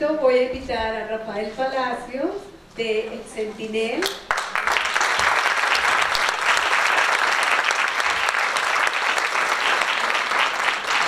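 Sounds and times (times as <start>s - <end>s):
audience applauding: 4.1s - 11.0s.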